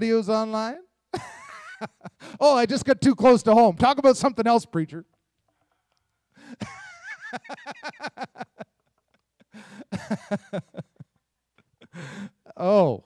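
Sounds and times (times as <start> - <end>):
person laughing: 1.2 - 2.5, 6.4 - 12.7.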